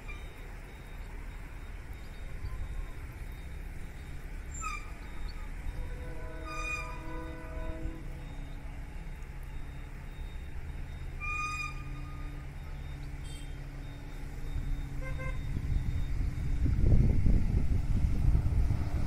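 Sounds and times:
distant engine hum: 0.0 - 19.0
wind rumble on microphone: 14.2 - 19.0.

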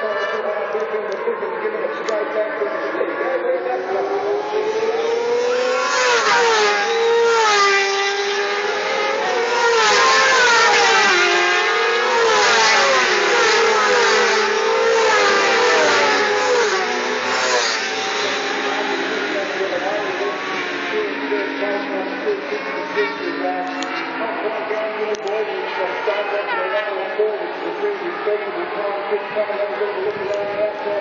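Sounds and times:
racing motorcycles accelerating past: 3.8 - 24.4.

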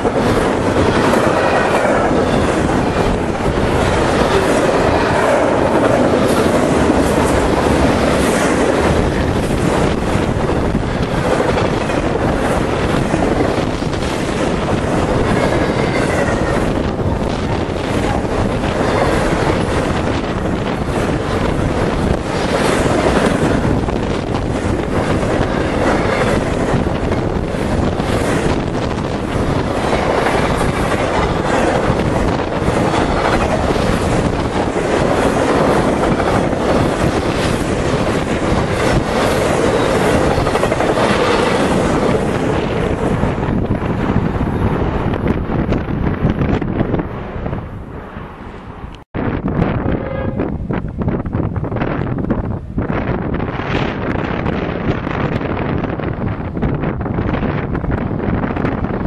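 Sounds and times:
freight train wheels clattering: 0.0 - 46.9.

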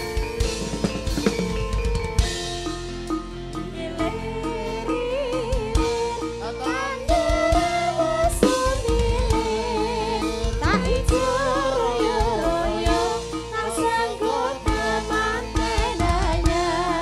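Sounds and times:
amplified band with drums: 0.0 - 17.0
women singing together: 3.6 - 17.0.

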